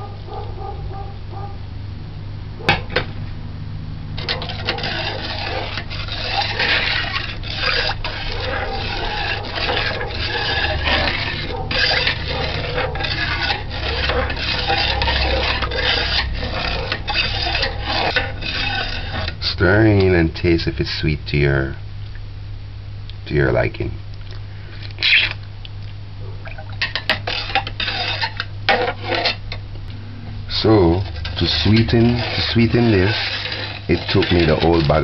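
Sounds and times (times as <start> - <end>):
liquid sloshing: 4.2 - 19.3, 30.7 - 35.0
metal spoon scraping a pot: 4.2 - 20.7, 26.7 - 29.6, 30.5 - 35.0.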